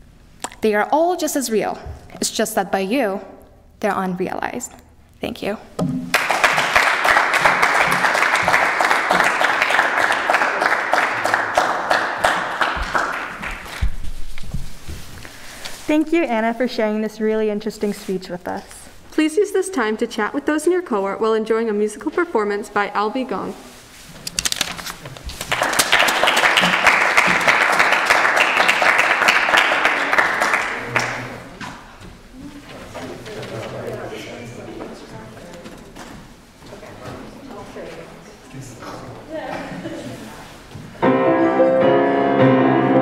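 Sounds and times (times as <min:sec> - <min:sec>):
small audience applauding: 0:06.1 - 0:14.0, 0:25.4 - 0:31.6.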